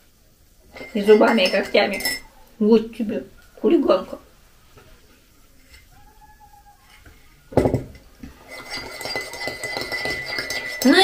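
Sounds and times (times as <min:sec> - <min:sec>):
teaspoon clinking in ceramic mug: 0:00.8 - 0:02.3, 0:08.5 - 0:11.0
thump: 0:07.5 - 0:07.9
thin steady ringing note: 0:08.4 - 0:11.0.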